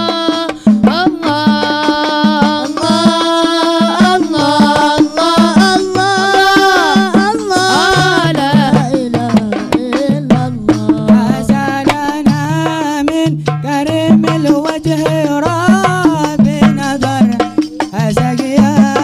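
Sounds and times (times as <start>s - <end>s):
person chanting a melody: 0.0s - 13.4s
hand drums playing busy rhythm: 0.0s - 19.0s.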